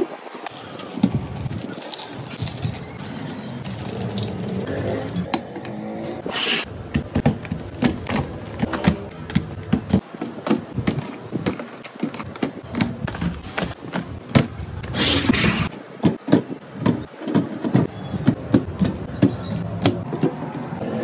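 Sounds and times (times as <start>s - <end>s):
box scraping: 14.8s - 15.7s.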